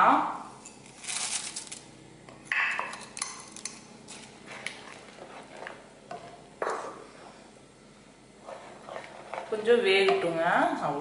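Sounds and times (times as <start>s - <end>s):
spoon scraping pan: 4.5s - 5.8s, 8.4s - 10.2s.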